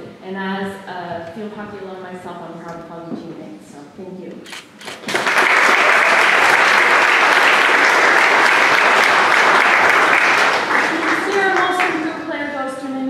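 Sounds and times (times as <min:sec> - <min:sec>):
audience applauding: 0:04.8 - 0:12.2.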